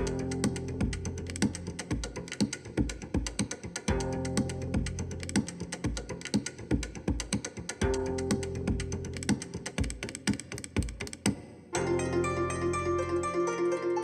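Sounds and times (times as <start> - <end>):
music with steady beat: 0.0 - 13.9
plucked string tune: 11.8 - 14.0.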